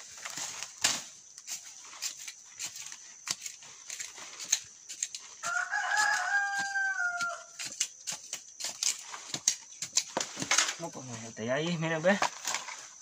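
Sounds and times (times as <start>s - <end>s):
hand tool digging soil: 0.0s - 13.0s
rooster crowing: 5.4s - 7.6s.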